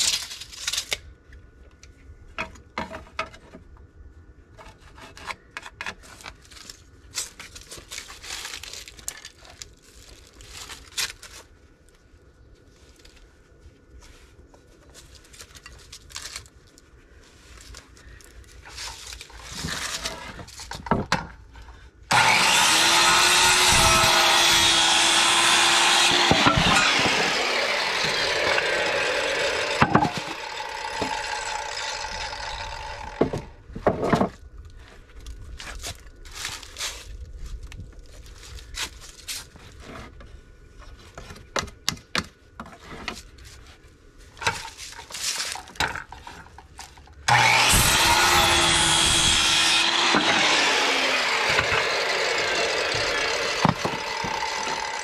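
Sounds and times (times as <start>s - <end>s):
circular saw cutting wood: 22.1s - 33.5s, 47.3s - 55.0s.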